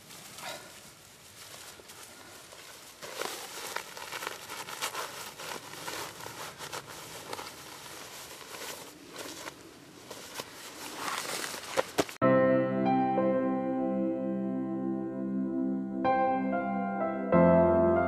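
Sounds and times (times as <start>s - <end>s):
fabric rustling and crinkling: 0.0s - 12.2s.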